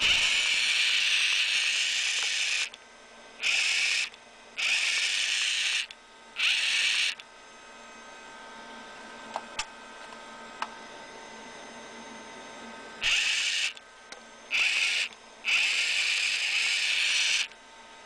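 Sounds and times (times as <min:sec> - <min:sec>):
welding machine whine: 0:00.0 - 0:07.4, 0:13.0 - 0:17.6.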